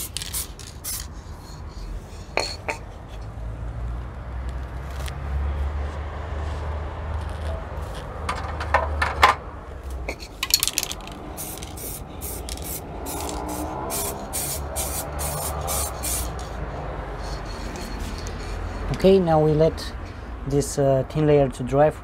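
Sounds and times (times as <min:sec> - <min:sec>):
aerosol spray hisses: 0:11.4 - 0:16.4.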